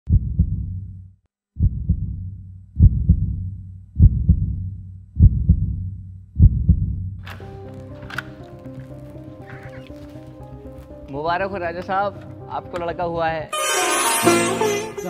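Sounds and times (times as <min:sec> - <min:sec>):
heartbeat thumps: 0:00.1 - 0:00.9, 0:01.6 - 0:07.2.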